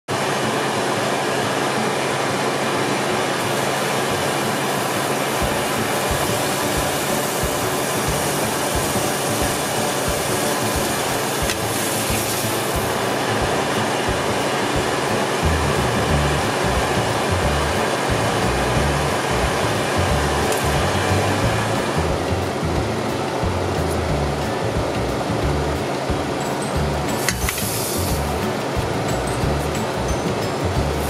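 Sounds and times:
loud rushing noise: 0:00.1 - 0:31.0
faint low thumps: 0:13.4 - 0:27.1.

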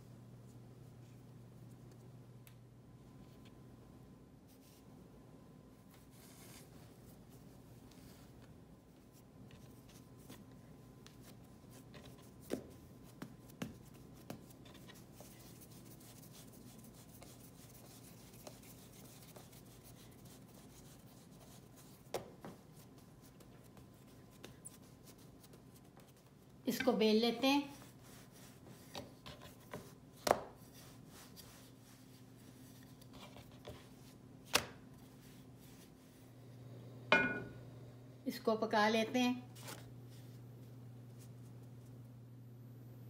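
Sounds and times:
hands patting dough: 0:09.5 - 0:27.0, 0:27.6 - 0:36.0.

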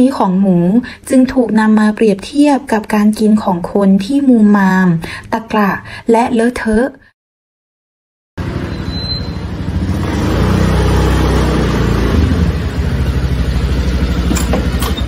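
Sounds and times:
vehicle engine running: 0:08.4 - 0:15.0.

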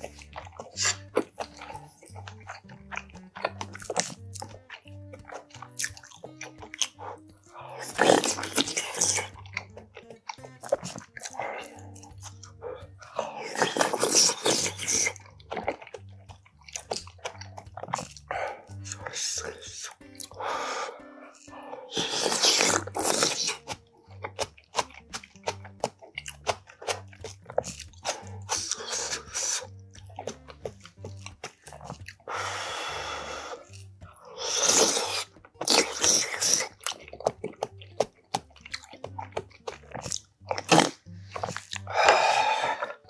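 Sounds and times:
blowing on food: 0:00.0 - 0:09.4, 0:10.9 - 0:15.2, 0:17.4 - 0:24.3, 0:27.6 - 0:30.4, 0:31.8 - 0:36.8, 0:40.5 - 0:43.0
loud slurping: 0:00.0 - 0:16.0, 0:16.8 - 0:37.3, 0:39.1 - 0:43.0
faint background music with beat: 0:00.0 - 0:43.0
mouth clicks: 0:00.0 - 0:43.0
wet chewing and crunching: 0:00.0 - 0:43.0.

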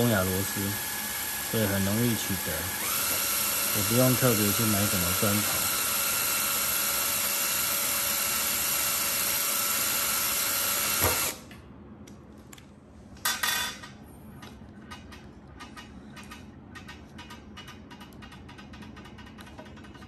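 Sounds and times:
cordless drill whining: 0:00.0 - 0:11.4.

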